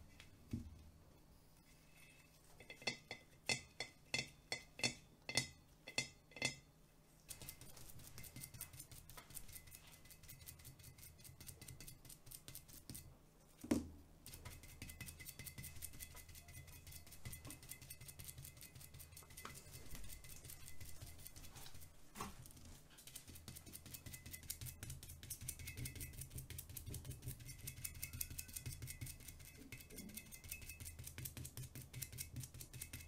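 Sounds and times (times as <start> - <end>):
sponge dabbing paint on glass: 2.0 - 33.0.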